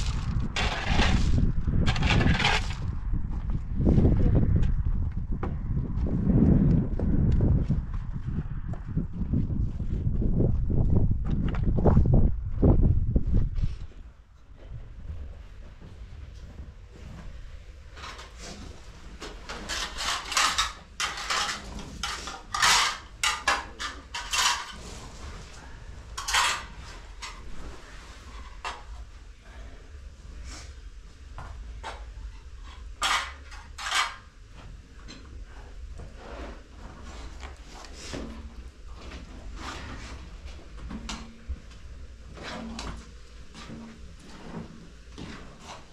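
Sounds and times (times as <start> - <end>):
low steady rumble: 0.0 - 18.9.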